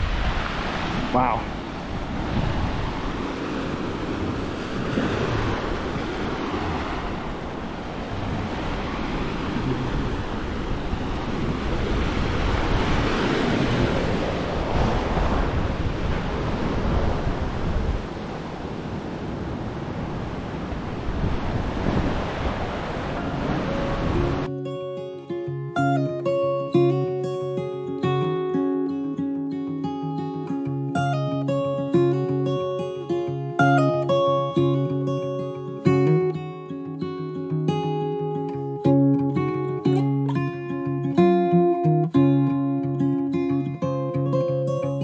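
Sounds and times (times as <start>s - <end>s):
surf breaking over rocks: 0.0s - 24.5s
wind buffeting microphone: 0.0s - 24.5s.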